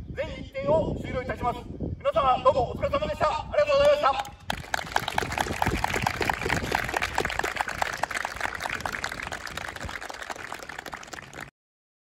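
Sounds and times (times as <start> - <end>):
group applause: 4.3 - 11.5.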